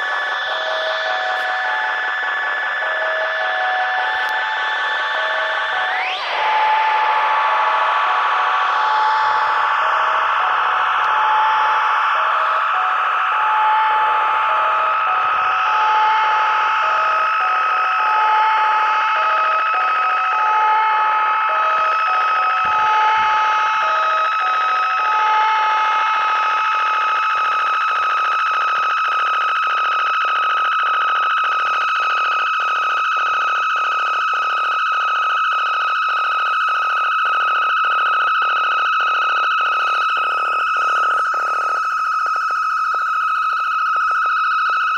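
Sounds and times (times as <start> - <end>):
high electronic drone: 0.0 - 27.6.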